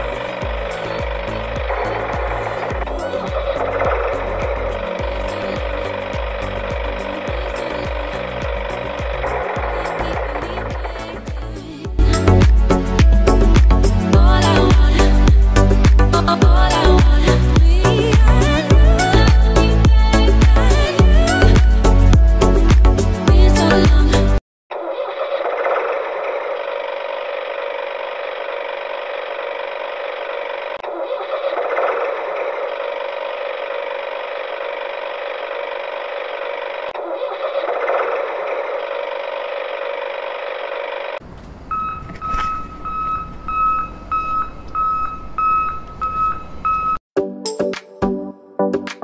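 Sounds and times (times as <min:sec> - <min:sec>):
tractor engine running: 0:00.0 - 0:24.2, 0:25.2 - 0:47.0
short beeps: 0:41.7 - 0:47.0.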